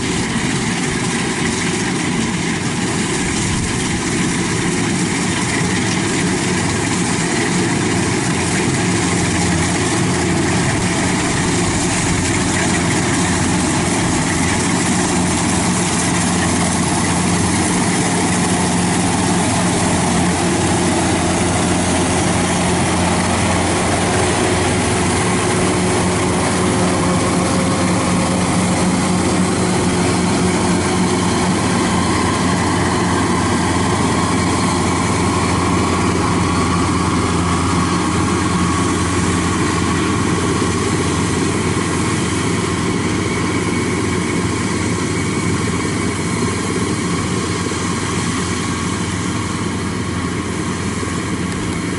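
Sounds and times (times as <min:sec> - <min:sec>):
combine harvester engine droning: 0:00.0 - 0:51.9.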